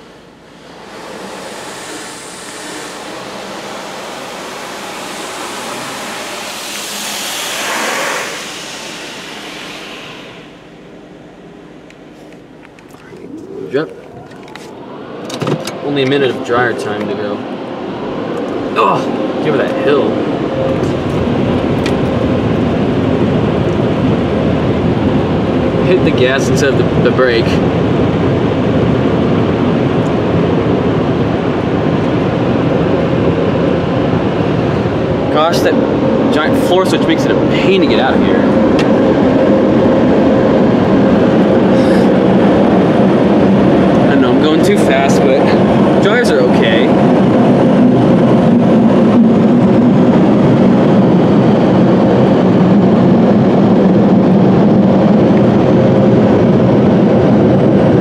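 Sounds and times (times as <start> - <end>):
car wash rushing noise: 0.0 - 58.0.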